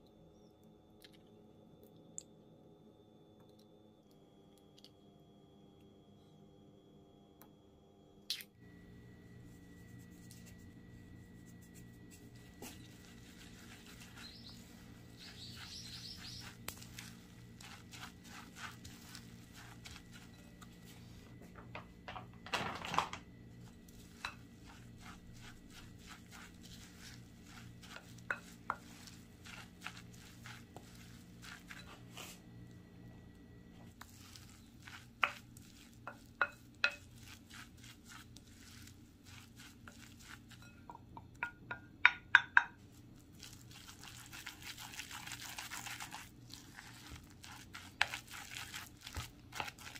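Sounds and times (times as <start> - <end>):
low steady hum: 0.0 - 49.9
spatula scraping a glass bowl: 12.1 - 20.9, 23.9 - 32.4, 34.0 - 40.9.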